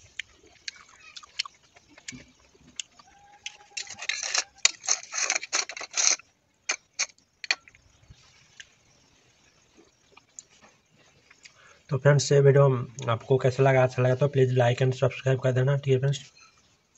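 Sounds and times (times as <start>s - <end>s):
metal spoon scraping steel bowl: 3.4s - 7.7s.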